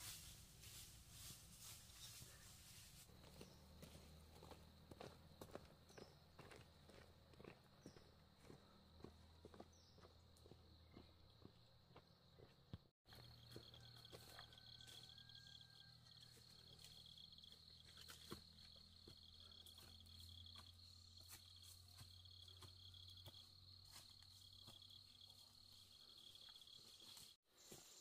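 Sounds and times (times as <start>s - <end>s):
insects chirring: 13.1s - 27.4s.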